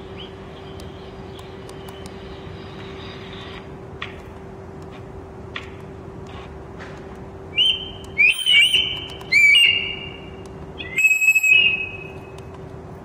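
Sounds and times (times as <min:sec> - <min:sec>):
faint electrical hum: 0:00.0 - 0:13.0
electronic bird call whistles: 0:07.5 - 0:12.2.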